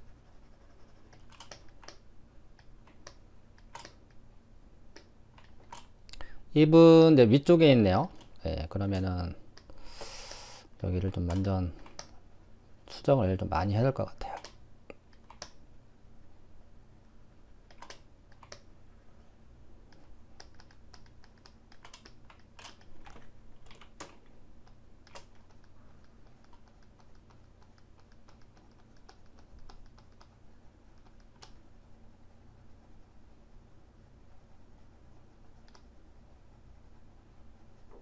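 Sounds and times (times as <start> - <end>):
faint low hum: 0.0 - 38.0
keyboard and mouse clicking: 1.0 - 4.2, 4.9 - 6.2, 11.2 - 12.2, 14.2 - 15.6, 17.7 - 18.7, 19.9 - 31.6, 35.6 - 35.9.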